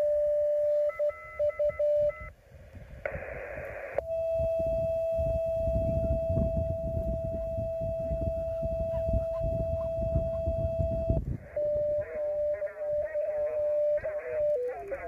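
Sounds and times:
steady radio tone: 0.0 - 2.3, 2.9 - 15.0
radio whistle: 3.1 - 15.0
garbled radio voice: 5.8 - 15.0.

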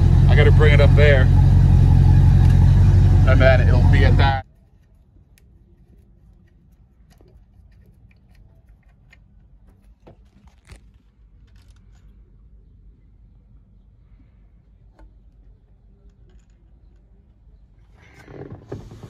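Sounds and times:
low steady hum: 0.0 - 18.3
hex key clicks and scrapes: 4.4 - 12.1.

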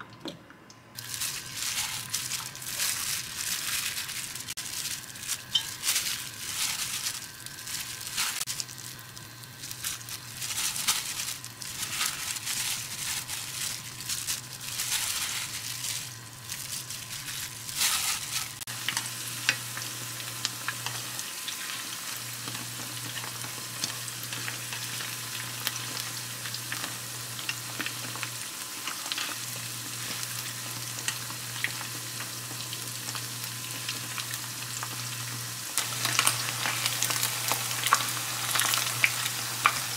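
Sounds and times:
low steady hum: 0.0 - 28.4
food sizzling in hot oil: 1.0 - 39.9.

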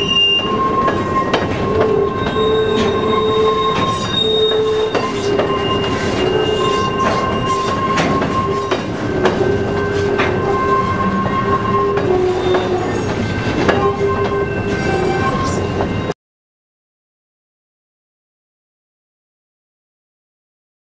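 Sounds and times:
train wheels squealing: 0.0 - 16.2
wheels knocking on rail joints: 0.8 - 14.5.

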